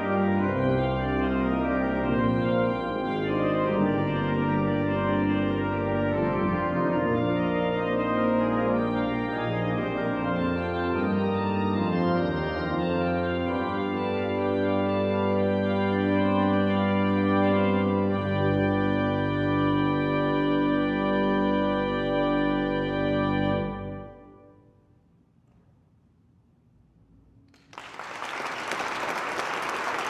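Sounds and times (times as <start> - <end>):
deep organ pedal bass: 0.0 - 24.4
pipe organ chords: 0.0 - 24.7.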